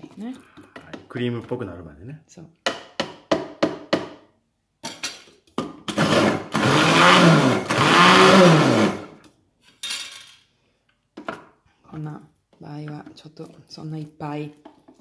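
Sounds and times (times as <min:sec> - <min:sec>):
food processor whirring: 0:05.8 - 0:09.3.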